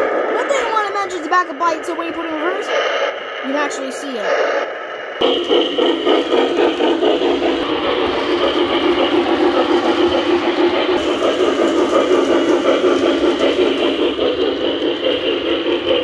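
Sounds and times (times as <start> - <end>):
model steam locomotive chuffing: 0.0 - 16.0
motor hum and rolling wheels: 4.8 - 16.0.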